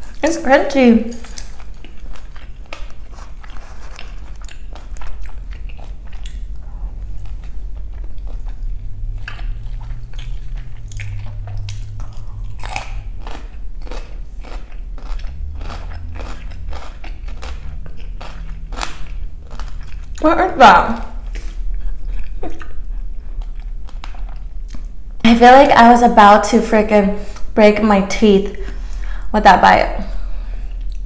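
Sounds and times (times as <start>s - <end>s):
chewing crunchy food: 1.0s - 25.0s.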